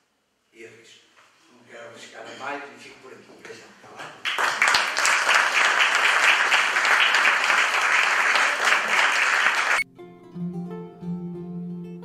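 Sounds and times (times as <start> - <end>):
audience applauding: 4.2 - 9.8
gentle plucked-string music: 9.8 - 12.0.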